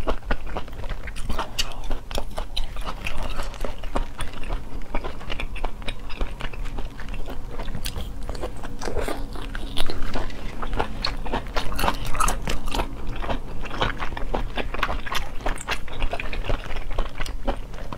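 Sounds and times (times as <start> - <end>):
low hum: 0.0 - 17.9
person chewing with mouth clicks: 0.0 - 17.9.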